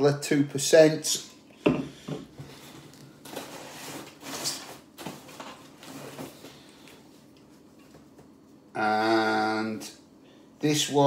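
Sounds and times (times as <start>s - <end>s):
cardboard rustling and scraping: 2.4s - 6.6s.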